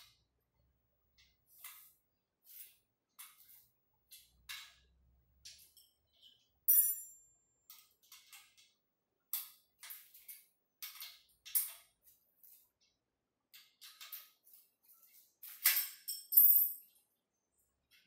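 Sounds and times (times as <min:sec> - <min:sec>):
metal tool clinking on steel: 0:06.7 - 0:07.2, 0:15.6 - 0:16.9.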